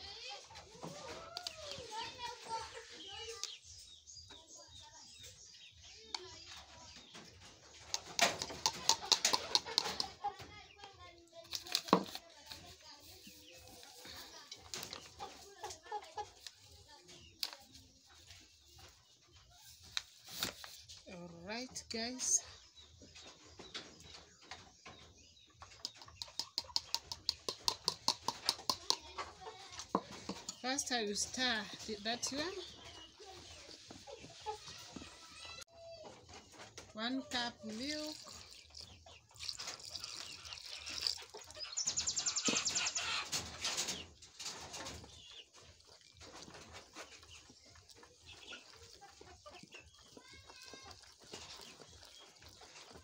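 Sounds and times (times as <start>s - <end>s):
chickens calling: 6.6s - 10.7s, 13.2s - 17.0s, 22.3s - 53.0s.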